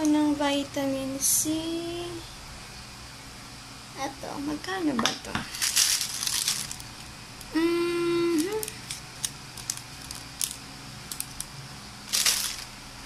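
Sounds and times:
packaging clicks and rustle: 5.5 - 7.0, 8.4 - 11.5, 12.1 - 12.8
woman humming: 7.5 - 8.8.

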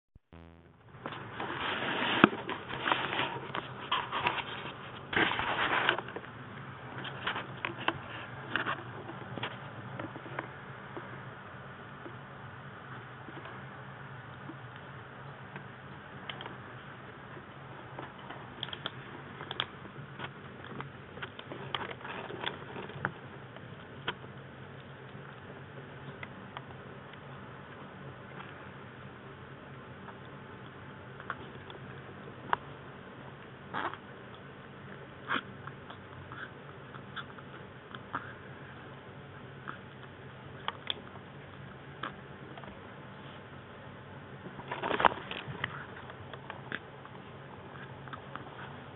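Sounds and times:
low background hum: 0.2 - 48.9
rustling: 0.4 - 11.0, 16.2 - 26.4, 44.4 - 48.9
kittens crunching dry kibble: 15.6 - 28.8, 44.4 - 48.9.

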